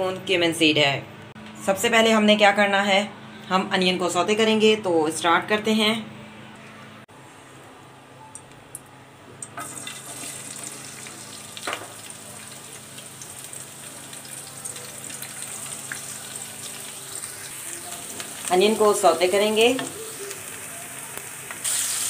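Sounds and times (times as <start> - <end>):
onions sizzling in hot oil: 9.6 - 22.0.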